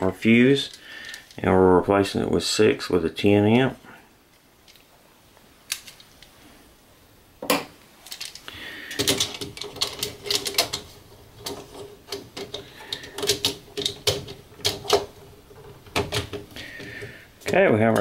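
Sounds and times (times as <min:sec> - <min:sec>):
plastic circuit breakers clicking: 0:07.5 - 0:18.0.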